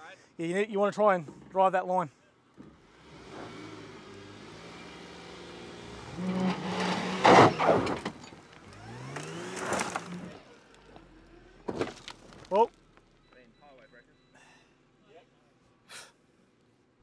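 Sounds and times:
car engine revving: 2.8s - 11.7s
tyres spinning on gravel: 6.1s - 10.8s
flung stones crunching: 6.3s - 10.8s.

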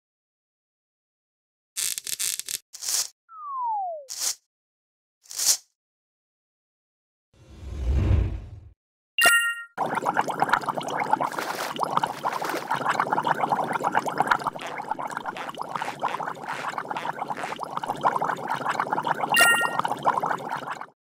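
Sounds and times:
water bubbling and gurgling: 9.7s - 21.0s
foot spa beep: 19.3s - 19.9s.

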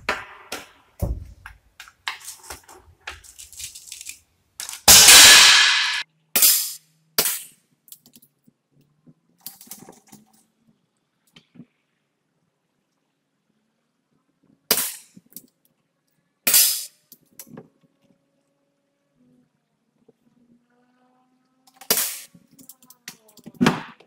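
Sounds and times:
air rifle shot: 4.9s - 6.6s.

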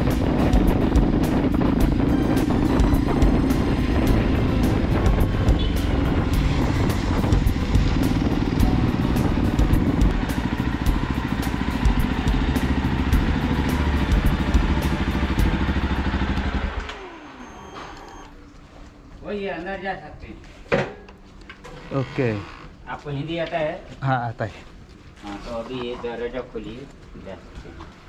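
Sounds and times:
motorcycle engine running: 0.0s - 17.7s
engine shutting down whine: 0.0s - 18.4s.

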